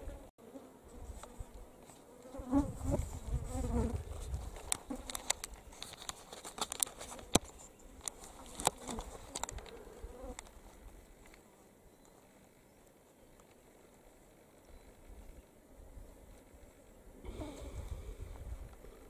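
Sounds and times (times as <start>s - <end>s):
flies buzzing: 0.0s - 5.6s, 7.1s - 11.9s, 16.8s - 19.0s.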